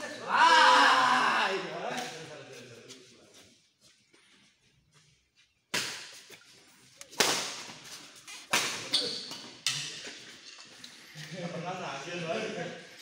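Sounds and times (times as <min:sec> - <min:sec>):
rackets striking shuttlecock: 0:05.7 - 0:06.4, 0:08.4 - 0:10.0.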